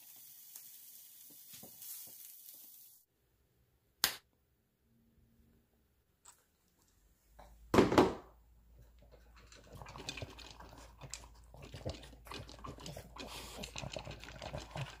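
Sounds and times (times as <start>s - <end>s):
dog crunching and chewing food: 9.2s - 15.0s.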